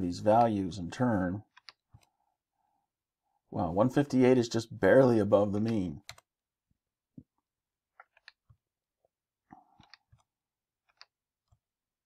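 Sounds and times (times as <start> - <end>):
faint keyboard keystrokes: 5.5 - 6.3.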